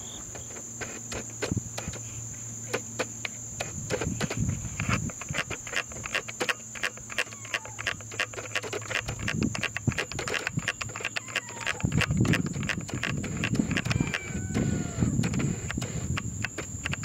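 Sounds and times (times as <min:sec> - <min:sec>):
steady high whine: 0:00.0 - 0:17.0.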